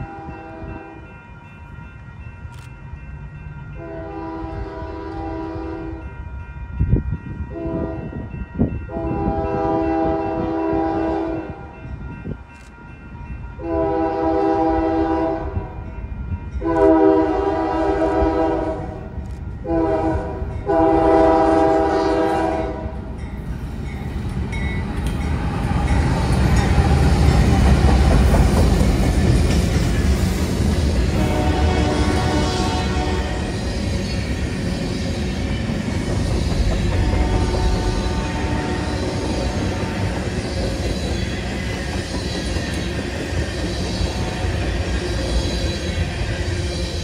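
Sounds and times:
locomotive air horn blasts: 0:00.0 - 0:01.0, 0:03.8 - 0:06.1, 0:07.5 - 0:08.2, 0:08.9 - 0:11.6, 0:13.6 - 0:15.7, 0:16.6 - 0:23.0, 0:31.1 - 0:33.6, 0:37.0 - 0:40.2
diesel locomotive engines rumbling: 0:00.0 - 0:47.0.

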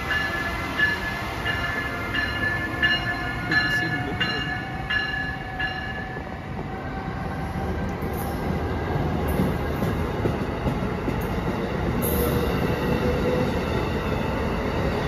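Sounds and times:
locomotive bell ringing: 0:00.0 - 0:06.4
train rumble: 0:00.0 - 0:15.0.

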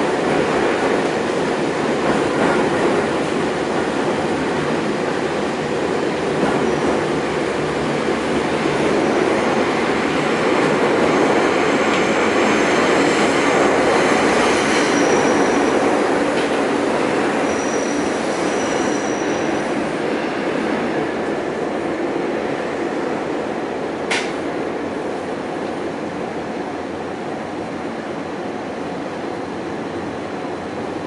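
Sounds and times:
train wheels rumbling on rails: 0:00.0 - 0:31.0.

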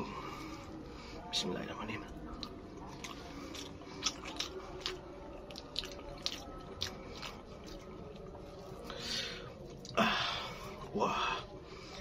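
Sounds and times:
man chewing with wet smacks: 0:02.1 - 0:10.0.

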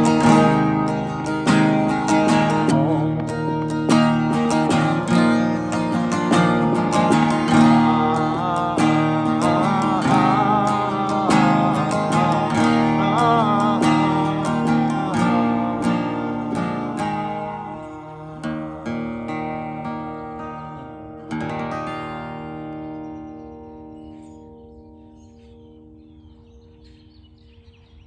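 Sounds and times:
man singing: 0:00.0 - 0:22.3
acoustic guitar strummed: 0:00.0 - 0:27.7.

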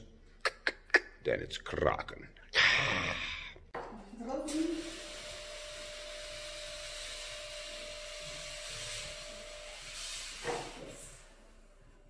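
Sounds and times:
fog machine hissing: 0:04.4 - 0:11.8.

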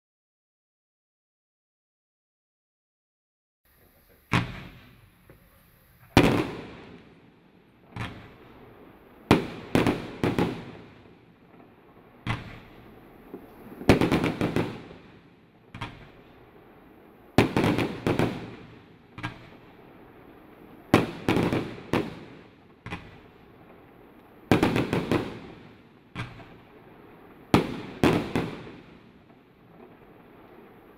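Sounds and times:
firework cake bangs: 0:04.3 - 0:05.5, 0:07.9 - 0:08.5, 0:12.2 - 0:16.3, 0:17.4 - 0:19.7, 0:20.9 - 0:23.4, 0:24.5 - 0:26.7, 0:27.5 - 0:30.9.

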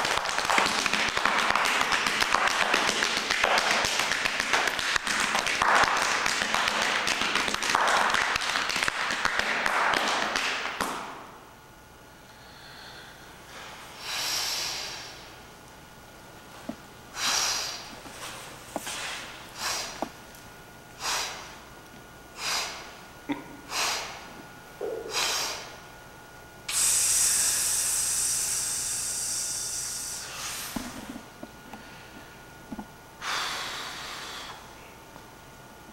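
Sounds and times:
heavy breathing: 0:12.2 - 0:15.4, 0:17.2 - 0:18.0, 0:24.9 - 0:25.8, 0:33.2 - 0:34.7
long hissing exhale: 0:12.2 - 0:15.4, 0:17.2 - 0:18.0, 0:19.0 - 0:20.1, 0:21.0 - 0:21.6, 0:22.4 - 0:23.0, 0:23.7 - 0:24.3, 0:25.0 - 0:25.8, 0:26.7 - 0:31.2, 0:33.2 - 0:34.8.

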